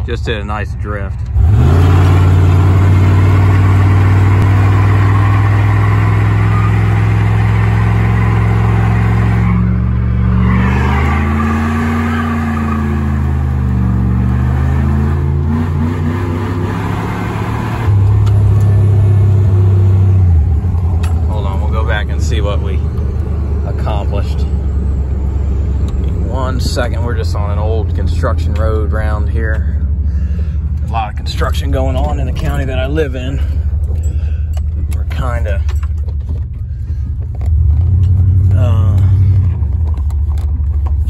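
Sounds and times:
engine pulling under heavy throttle: 1.1 - 41.0.

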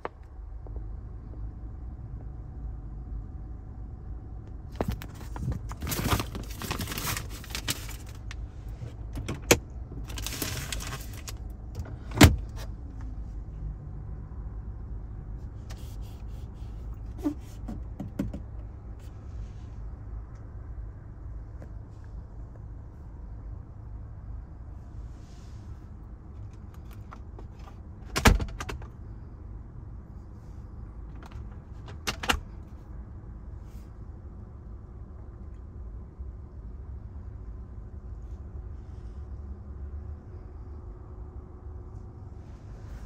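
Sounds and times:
low car cabin hum: 0.0 - 43.0
stiff paper crinkling: 4.7 - 8.4, 10.0 - 11.5.

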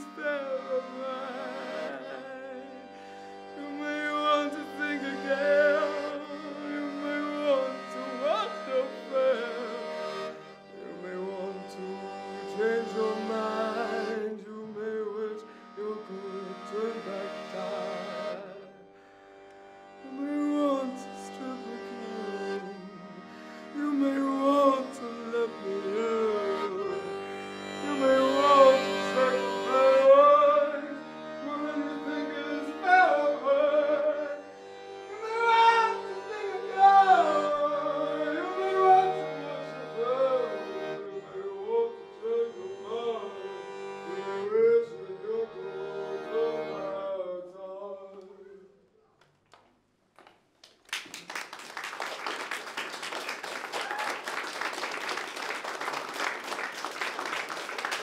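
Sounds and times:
wordless vocal melody: 0.0 - 48.8
accordion chords: 0.0 - 48.9, 51.3 - 58.0
audience applauding: 50.2 - 58.0.

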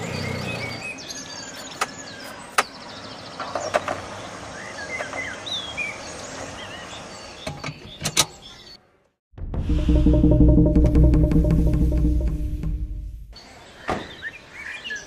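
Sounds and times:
music: 9.3 - 13.4.

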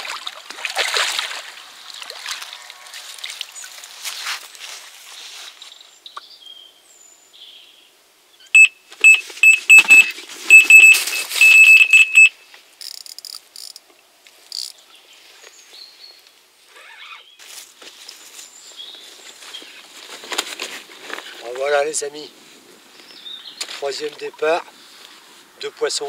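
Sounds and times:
bite alarm beeps: 8.6 - 12.4.

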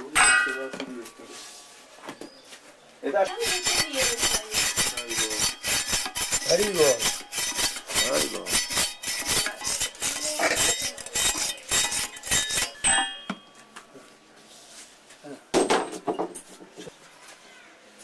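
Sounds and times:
metal tool scraping metal casting: 3.2 - 13.4.

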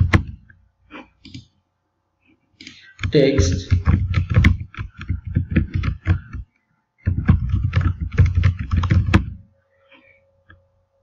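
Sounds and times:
computer keyboard typing: 2.6 - 9.4.

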